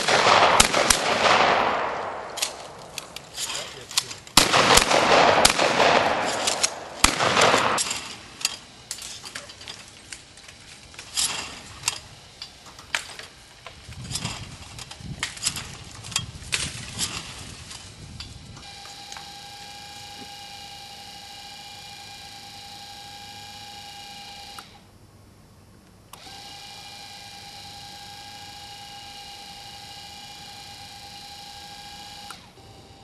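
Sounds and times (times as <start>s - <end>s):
shotgun shots with echo: 0.0s - 2.9s, 4.4s - 8.2s.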